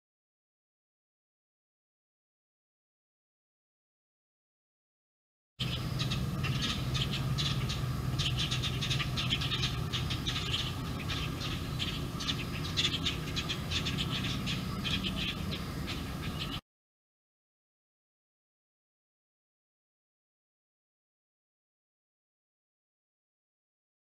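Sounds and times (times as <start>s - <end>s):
many small birds chirping: 5.6s - 16.6s
steady low hum: 5.6s - 16.6s.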